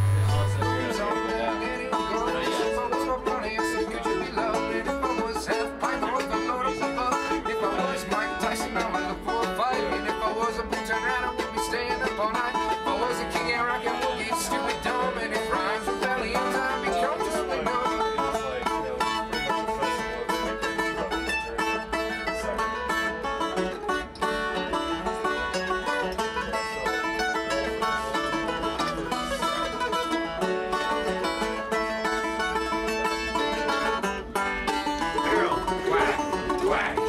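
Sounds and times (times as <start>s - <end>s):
low hum: 0.0s - 0.8s
bluegrass string band: 0.0s - 37.0s.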